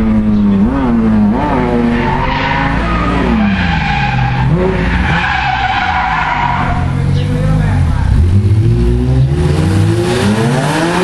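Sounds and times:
car engine revving: 0.0s - 11.0s
tyres squealing: 1.6s - 7.2s.

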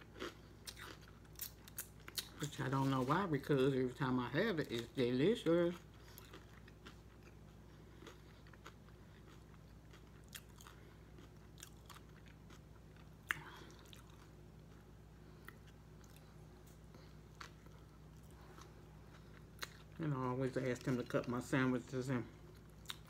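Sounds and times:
person chewing sandwich: 0.0s - 3.1s, 5.5s - 20.0s, 22.4s - 23.0s.

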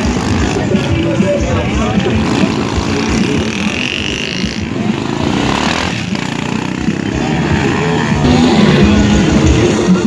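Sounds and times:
voices in background: 0.0s - 5.5s
dirt bike engine revving: 0.0s - 10.0s.

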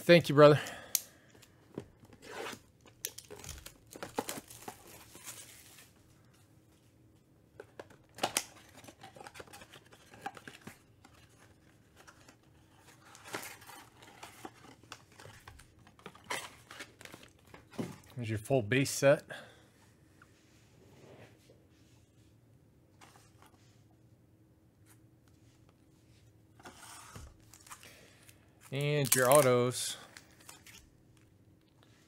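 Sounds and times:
plastic wrap tearing and crinkling: 2.3s - 5.9s, 28.7s - 30.9s.

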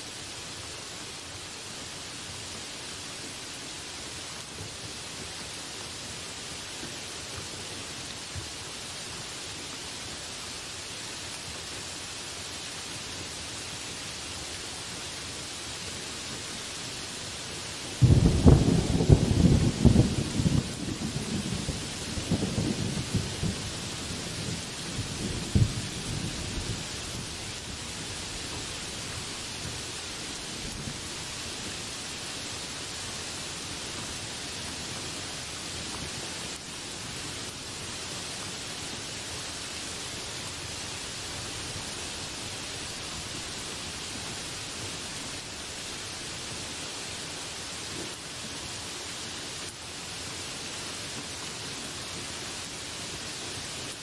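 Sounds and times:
heavy rain on leaves: 0.0s - 54.0s
thunder rumbling: 18.0s - 27.7s.

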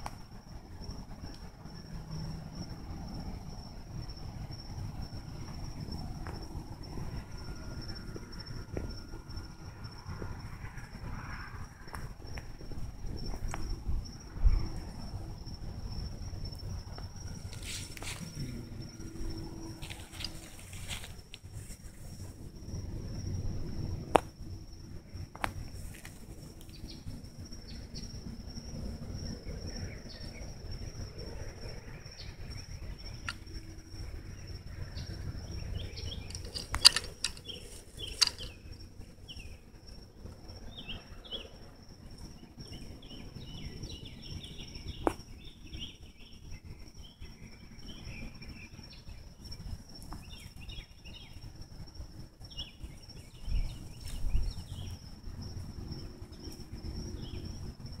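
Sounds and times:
high-pitched insect drone: 0.0s - 58.0s
sharp clicks: 36.3s - 38.6s.

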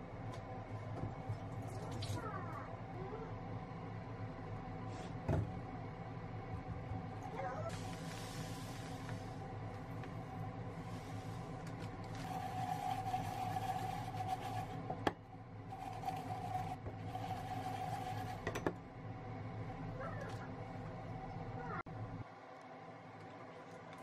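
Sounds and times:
fruit swirled in saucepan: 10.4s - 14.9s.

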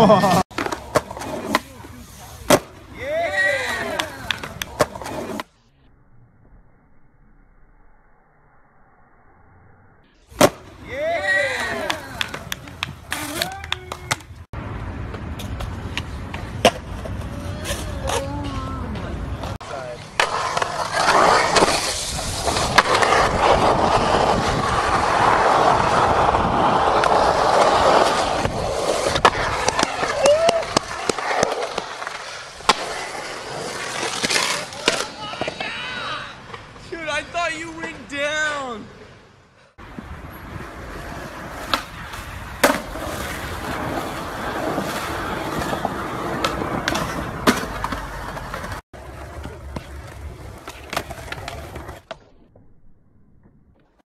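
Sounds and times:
skateboard wheels rolling on concrete: 0.0s - 5.7s, 10.2s - 54.0s
skateboard clacking: 2.5s - 5.1s, 11.3s - 14.4s.

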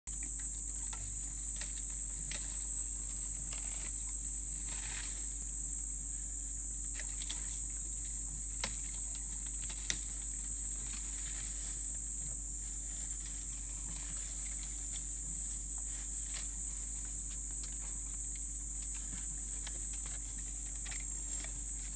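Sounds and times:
insects droning: 0.1s - 21.9s
leaves rustling: 0.4s - 5.8s, 6.9s - 21.9s
branches snapping: 6.9s - 7.8s, 8.4s - 12.0s.

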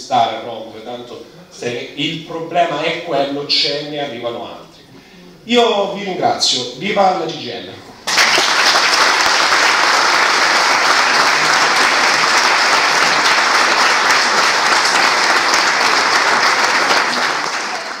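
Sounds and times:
audience applauding: 8.0s - 18.0s.

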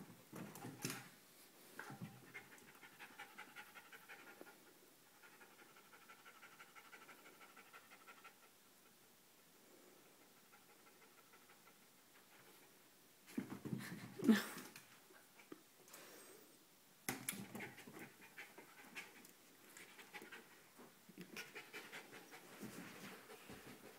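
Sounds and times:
dog panting: 2.1s - 4.6s, 5.2s - 8.5s, 21.2s - 23.9s.

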